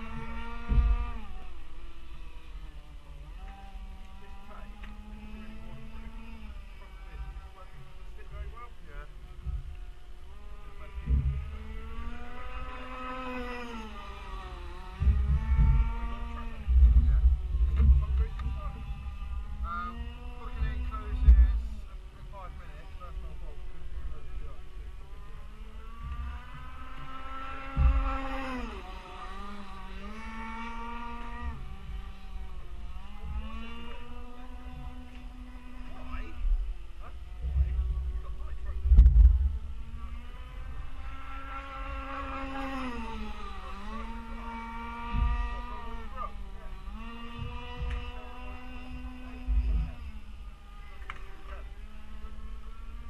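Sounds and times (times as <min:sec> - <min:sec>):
wind rumble on microphone: 0:00.0 - 0:01.8, 0:05.6 - 0:50.7
model boat engine racing past: 0:00.0 - 0:08.1, 0:09.9 - 0:17.5, 0:21.6 - 0:38.8, 0:39.4 - 0:53.0
loud thump: 0:38.7 - 0:39.8.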